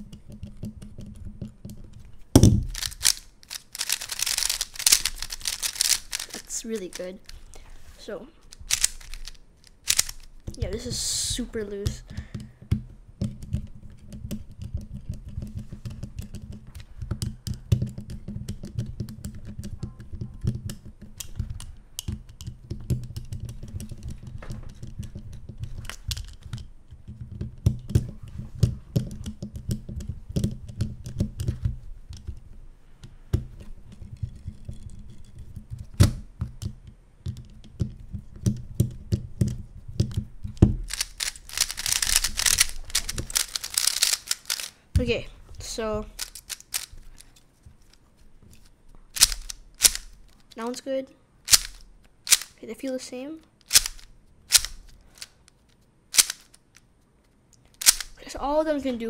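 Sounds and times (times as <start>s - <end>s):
cube pieces knocking: 0.0s - 7.6s, 8.4s - 47.3s, 49.0s - 50.5s, 51.5s - 52.6s, 53.6s - 55.4s, 56.1s - 56.8s, 57.8s - 58.3s
cube layers turning: 0.2s - 12.0s, 38.5s - 48.0s, 48.6s - 50.7s, 51.5s - 52.6s, 53.6s - 55.5s, 56.1s - 56.9s, 57.6s - 58.4s
screwdriver clicking on plastic cube: 8.5s - 10.3s, 49.2s - 50.1s, 51.5s - 52.5s, 53.6s - 55.3s, 56.2s - 56.6s, 57.8s - 58.2s.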